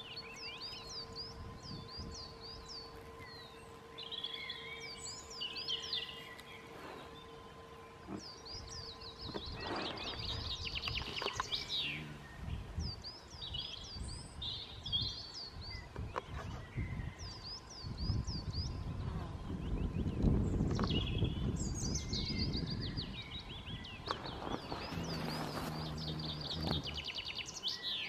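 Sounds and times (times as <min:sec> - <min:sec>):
wind rumble on microphone: 0:00.0 - 0:03.5, 0:08.0 - 0:27.9
songbirds chirping: 0:00.0 - 0:28.0.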